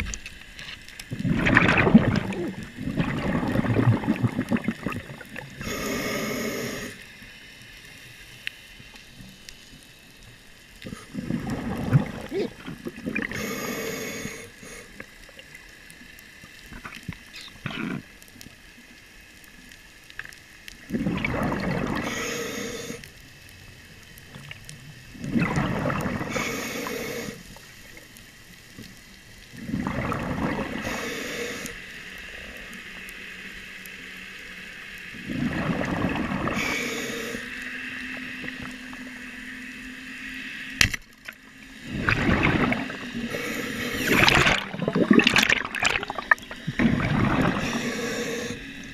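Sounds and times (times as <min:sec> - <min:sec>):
exhaled bubbles rushing underwater: 0:01.1 - 0:06.9, 0:10.9 - 0:14.4, 0:20.8 - 0:22.3, 0:24.3 - 0:26.6, 0:29.4 - 0:31.1, 0:35.1 - 0:36.8, 0:41.7 - 0:48.9
regulator inhaling hiss: 0:05.6 - 0:07.4, 0:13.2 - 0:15.2, 0:21.8 - 0:23.4, 0:26.2 - 0:27.8, 0:30.6 - 0:32.8, 0:36.4 - 0:38.0, 0:43.0 - 0:44.7, 0:46.1 - 0:48.9.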